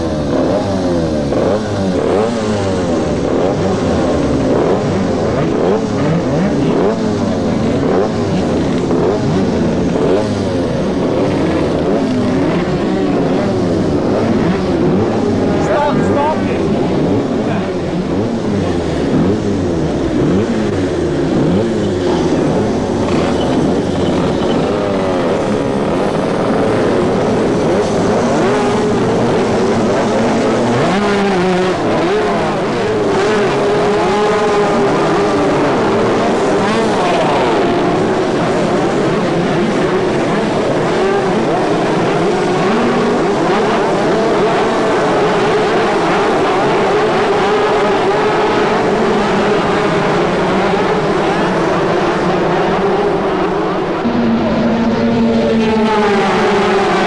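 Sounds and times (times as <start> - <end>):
kart engines revving: 0.0 - 57.0
steady held engine note: 53.4 - 57.0.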